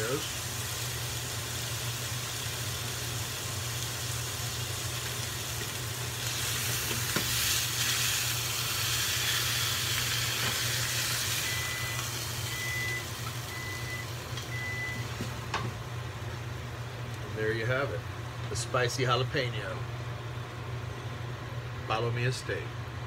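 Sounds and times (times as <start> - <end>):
steak sizzling in a frying pan: 0.0 - 15.5
short electronic beep: 11.5 - 15.0.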